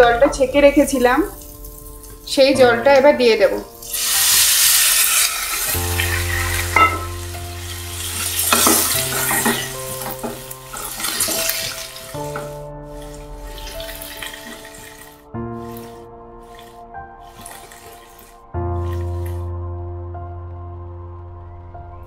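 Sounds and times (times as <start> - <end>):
soft background music: 0.0 - 22.0
liquid sizzling in hot pan: 1.3 - 2.3, 3.8 - 19.4
wooden spatula stirring: 8.2 - 19.4.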